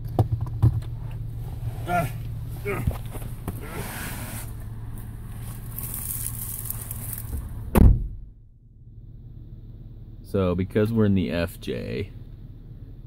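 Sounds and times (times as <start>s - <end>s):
car engine idling: 0.0s - 13.0s
clothing rustling: 1.2s - 7.5s
car door slamming: 7.3s - 8.3s.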